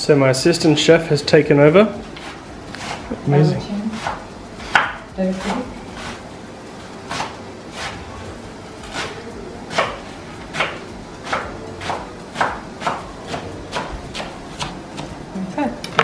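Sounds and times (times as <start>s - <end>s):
knife chopping on wooden board: 4.0s - 6.2s, 8.8s - 15.2s.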